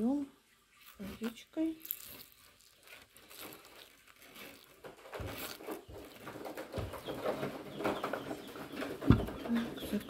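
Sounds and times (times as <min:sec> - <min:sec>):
water trickling onto soil: 0:00.7 - 0:07.4.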